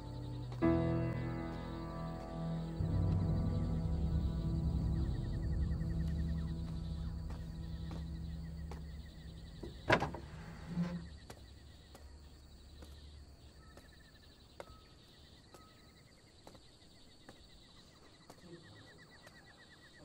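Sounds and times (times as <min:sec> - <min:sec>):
low music drone: 0:00.0 - 0:12.8
faint insect chirping: 0:00.0 - 0:20.0.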